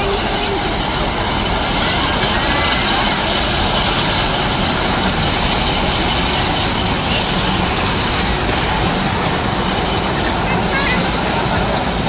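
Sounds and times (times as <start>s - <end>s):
ride train rolling rumble: 0.0s - 12.0s.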